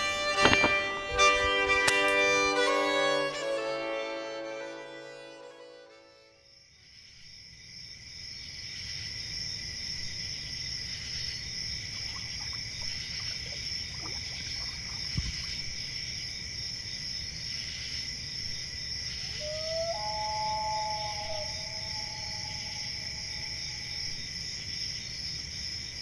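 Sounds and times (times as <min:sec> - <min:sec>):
crickets trilling: 0:06.4 - 0:26.0
loon wailing call: 0:19.3 - 0:24.0.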